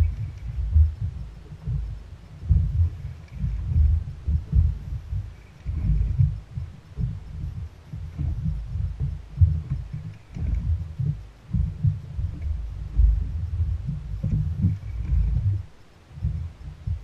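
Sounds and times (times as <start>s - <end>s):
boat thumping on swell: 0.0s - 17.0s
wind buffeting microphone: 0.0s - 17.0s.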